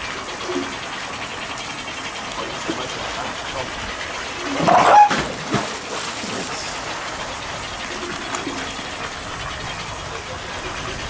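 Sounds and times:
rushing water: 0.0s - 11.0s
seal calling harshly: 4.4s - 5.3s.

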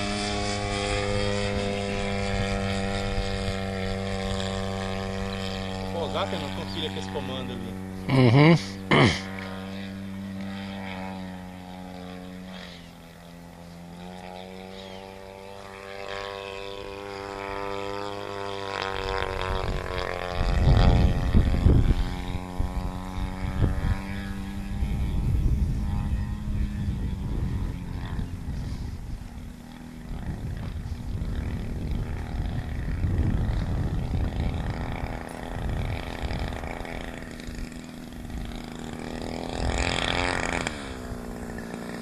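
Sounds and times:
model plane engine buzzing: 0.0s - 42.0s
low rumbling gusts: 24.6s - 42.0s.

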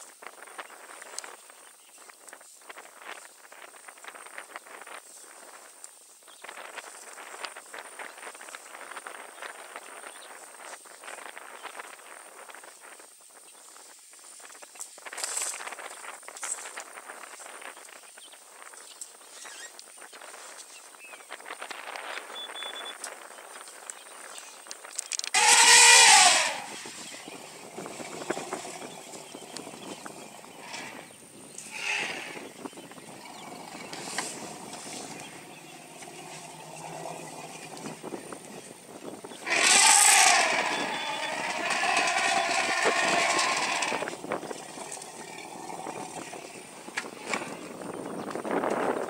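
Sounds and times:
elephant trumpeting: 25.3s - 47.4s.

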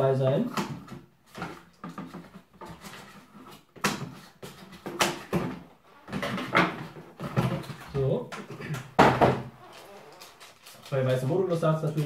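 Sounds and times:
cardboard packaging rustling: 9.5s - 12.0s.

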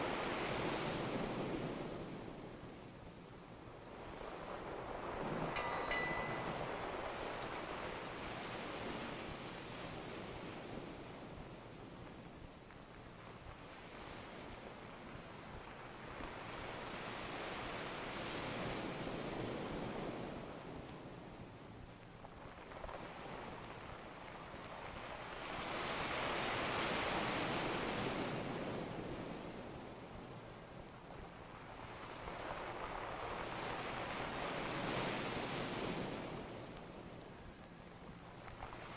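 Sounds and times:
ocean wave washing: 3.6s - 12.0s, 22.4s - 38.9s.

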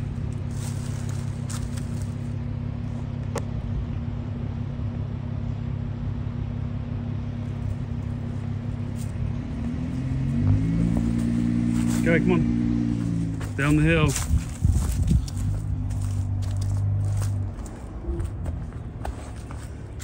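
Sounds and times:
off-road vehicle engine running: 0.0s - 20.0s.

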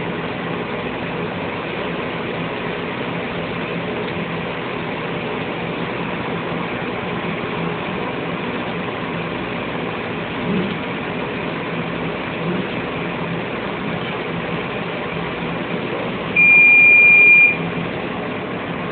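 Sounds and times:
laser cutter humming: 0.0s - 18.9s
loud high beep: 16.4s - 17.6s.

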